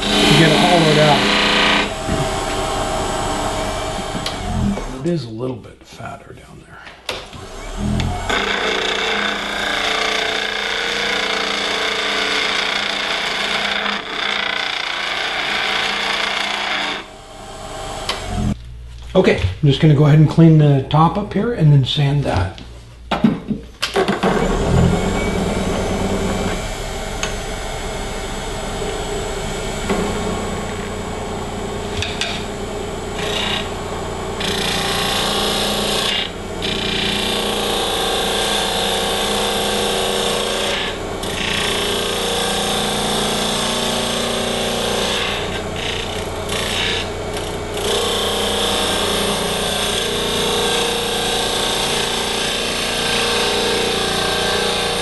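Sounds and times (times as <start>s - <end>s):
gouge cutting wood: 0.0s - 2.9s, 7.4s - 17.1s, 33.2s - 33.8s, 34.4s - 55.0s
lathe humming: 0.0s - 5.1s, 7.2s - 18.6s, 24.2s - 55.0s.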